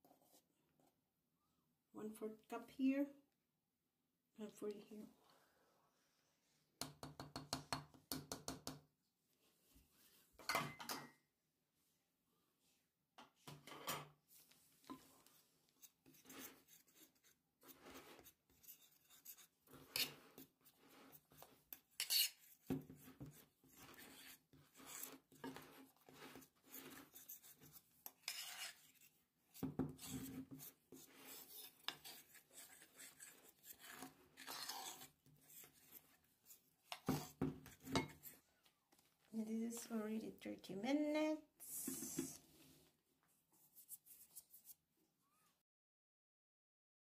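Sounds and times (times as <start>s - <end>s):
metal spoon scraping bowl: 15.8s - 29.2s, 29.9s - 38.4s.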